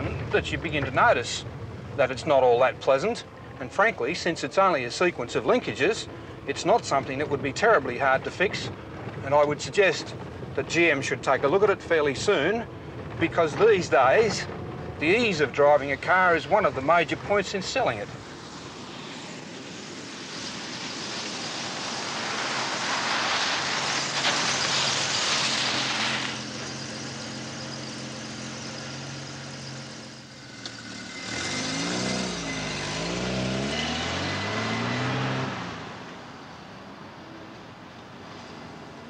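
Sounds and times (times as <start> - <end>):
tyres on gravel: 0.0 - 19.2, 19.8 - 34.6
car engine running and revving: 5.2 - 18.7, 21.2 - 36.1.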